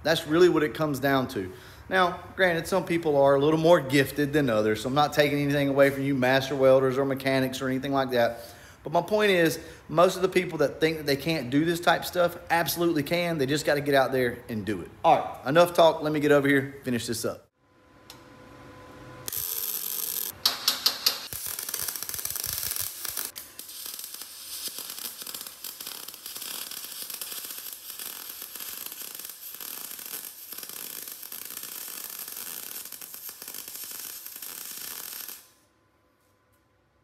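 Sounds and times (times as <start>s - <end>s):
welder arc crackling: 19.2s - 35.7s.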